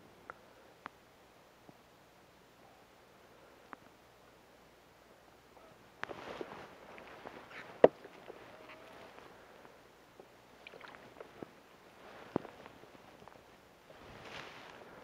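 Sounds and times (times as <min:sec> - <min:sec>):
gloves and clothing rustling: 0:06.0 - 0:09.8, 0:11.0 - 0:15.0.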